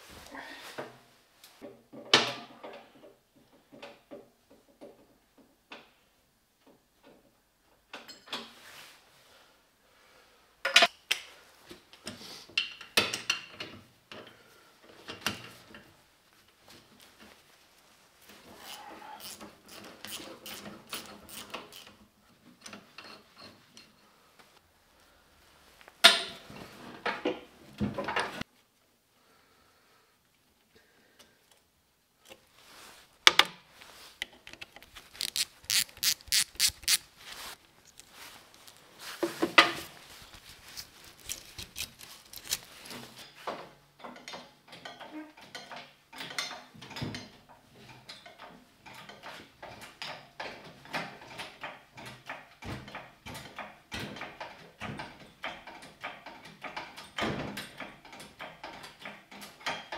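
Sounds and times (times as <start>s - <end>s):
metal tools clinking on steel: 40.6s - 43.2s.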